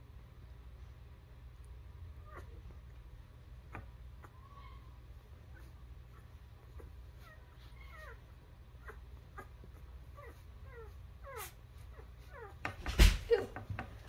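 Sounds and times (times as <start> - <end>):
puppies squeaking and whimpering: 2.2 - 2.8, 3.6 - 12.7.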